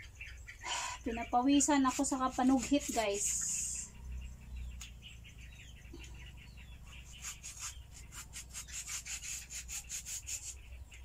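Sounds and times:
knife scraping fruit skin: 1.1 - 3.8, 6.8 - 10.6.

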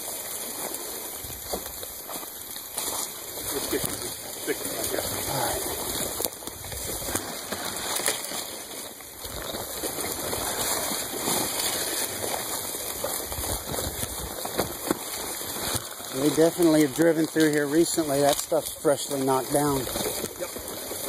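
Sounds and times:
bike tyres rushing through brush: 0.0 - 21.0.

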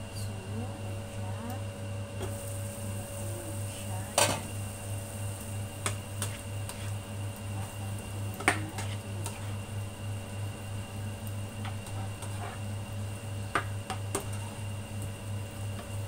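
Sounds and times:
low pulsing hum: 0.0 - 16.0
spatula stirring in frying pan: 5.1 - 10.5, 11.4 - 16.0.

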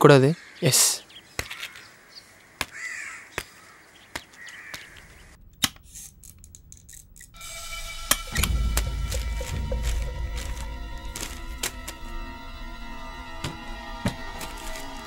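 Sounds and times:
crows cawing: 0.2 - 5.4
low music with deep bass: 7.4 - 15.0.

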